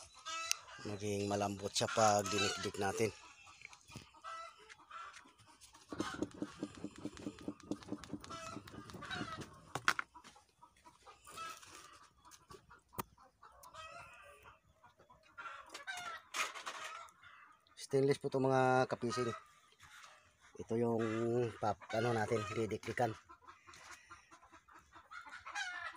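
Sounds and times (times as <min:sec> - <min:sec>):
chickens clucking: 0:00.0 - 0:25.9
sharp knocks: 0:05.9 - 0:10.0.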